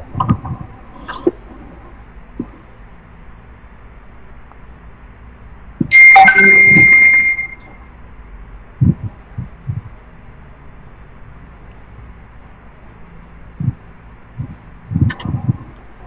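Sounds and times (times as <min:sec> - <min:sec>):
bell-like chime: 0:05.9 - 0:07.7.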